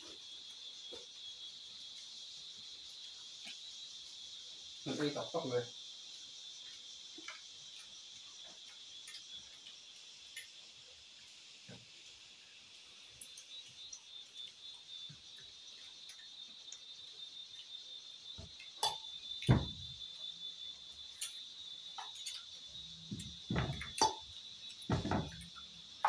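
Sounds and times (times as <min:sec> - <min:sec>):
crickets chirring: 0:00.0 - 0:26.0
knocks of plates and bowls: 0:23.1 - 0:24.3, 0:24.9 - 0:25.5.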